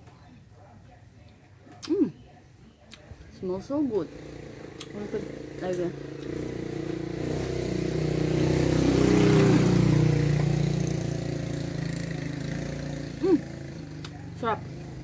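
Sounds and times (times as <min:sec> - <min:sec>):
passing vehicle engine: 0:03.8 - 0:15.0.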